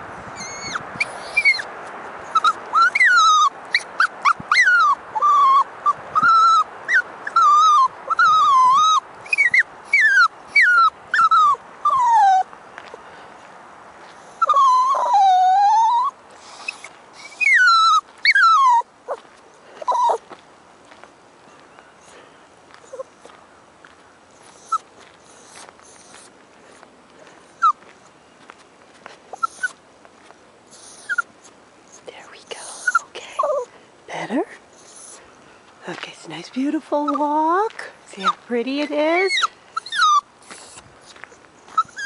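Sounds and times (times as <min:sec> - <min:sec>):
puppy whining and crying: 0:00.4 - 0:12.5, 0:14.2 - 0:19.2, 0:19.8 - 0:20.3, 0:22.8 - 0:23.2, 0:24.4 - 0:26.3, 0:27.6 - 0:27.8, 0:29.3 - 0:29.8, 0:30.7 - 0:33.8, 0:34.7 - 0:35.2, 0:39.2 - 0:42.0.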